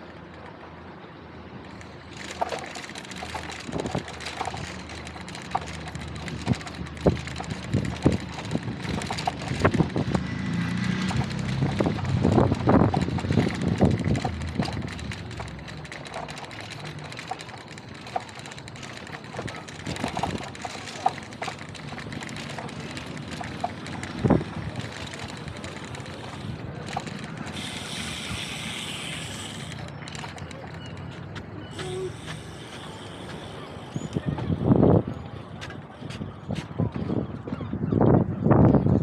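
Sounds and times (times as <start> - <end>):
bicycle knocks and rattles: 1.7 - 27.8
wind on microphone: 6.3 - 15.3, 33.9 - 39.0.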